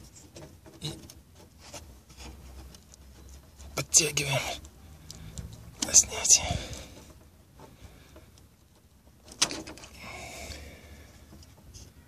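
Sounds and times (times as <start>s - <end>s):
handling rustle: 0.0s - 3.8s.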